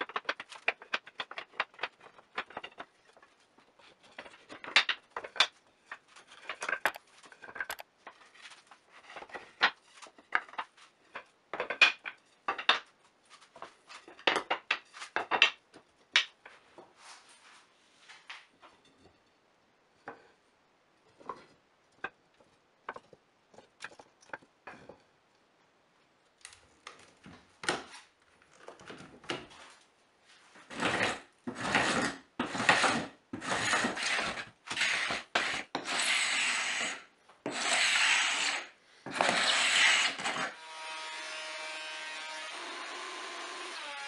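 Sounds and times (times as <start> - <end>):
wooden pieces clicking: 0.0 - 3.2, 4.0 - 7.9
scraping strokes on wood: 30.6 - 40.6.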